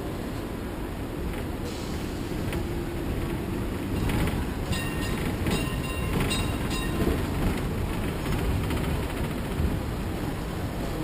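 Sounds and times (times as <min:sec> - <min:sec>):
tram rumbling on rails: 0:00.0 - 0:11.0
tram warning bell ringing: 0:03.9 - 0:07.5.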